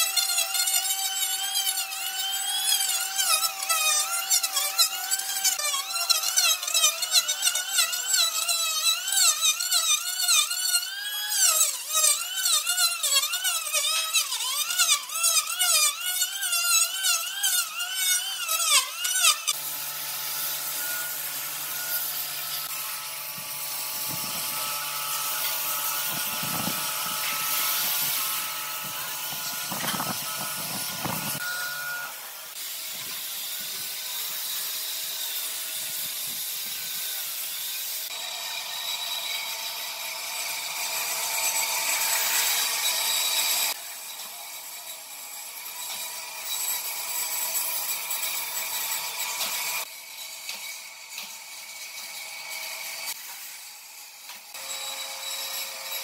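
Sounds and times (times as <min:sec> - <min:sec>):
angle grinder sanding wood: 0:00.0 - 0:56.0
electric planer motor whine: 0:10.8 - 0:34.4.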